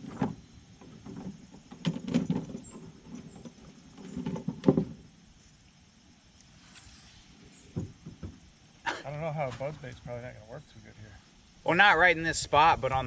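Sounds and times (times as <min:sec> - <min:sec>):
knocks and thumps in a boat: 0:00.0 - 0:05.1, 0:07.7 - 0:08.5.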